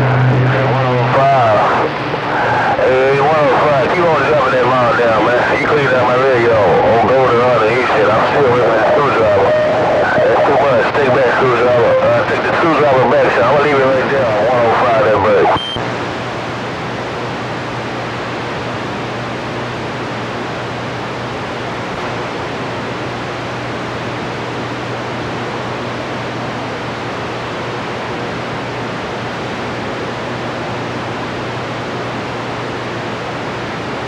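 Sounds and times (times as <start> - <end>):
radio static hiss: 0.0 - 34.0
steady low hum: 0.0 - 34.0.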